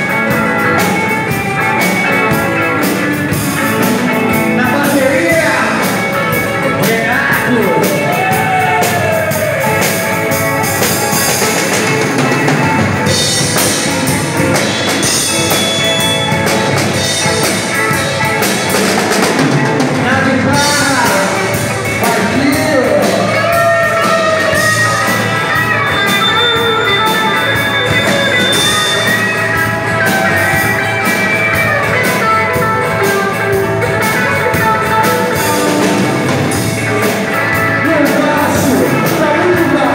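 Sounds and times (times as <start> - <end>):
distorted electric guitar: 0.0 - 39.9
drum kit: 0.0 - 39.9
person singing: 20.0 - 29.0, 31.5 - 39.9.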